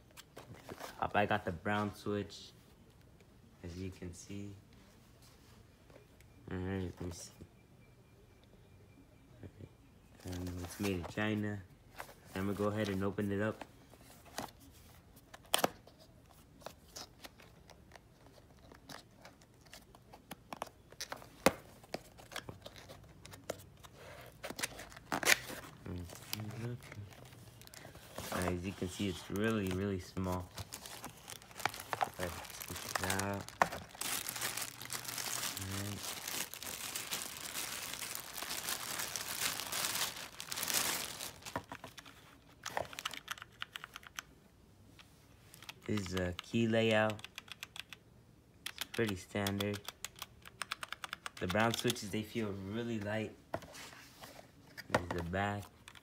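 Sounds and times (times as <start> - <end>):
hands handling cardboard box: 20.1 - 42.0
plastic bag crinkling: 27.5 - 41.8.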